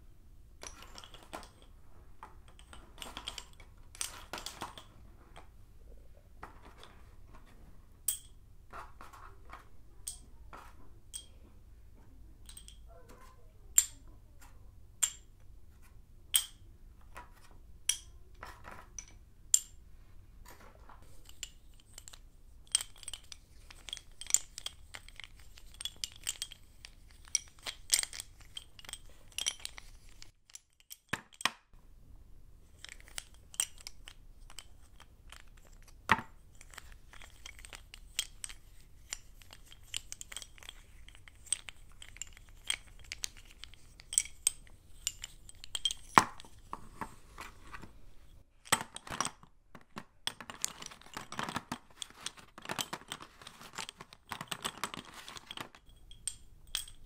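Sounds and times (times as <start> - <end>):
chalk sticks clinking: 0.6 - 5.5, 8.1 - 11.5, 12.4 - 15.4, 16.3 - 16.6, 17.2 - 19.8, 20.8 - 31.5, 32.6 - 57.0.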